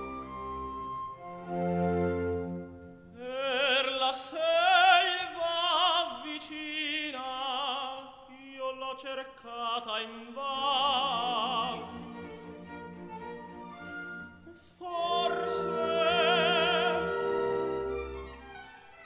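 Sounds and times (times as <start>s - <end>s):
sustained orchestral strings: 0.0s - 3.1s, 10.6s - 19.0s
operatic voice singing: 3.2s - 12.2s, 14.5s - 18.4s.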